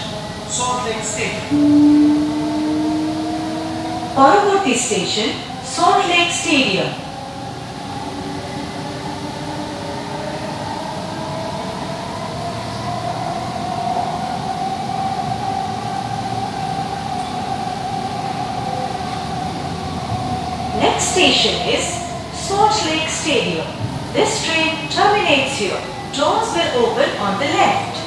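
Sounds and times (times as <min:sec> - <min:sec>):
train electric whine: 0:00.0 - 0:28.0
train running rumble: 0:00.0 - 0:28.0.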